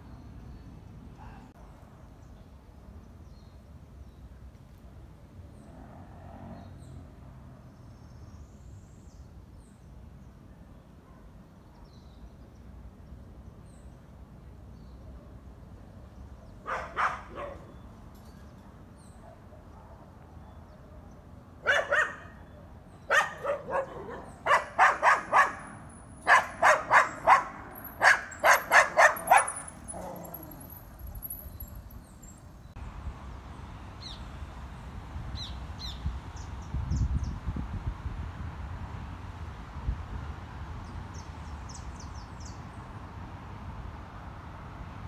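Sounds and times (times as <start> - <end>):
dog barking: 16.6 - 17.7, 21.6 - 22.4, 23.1 - 30.5.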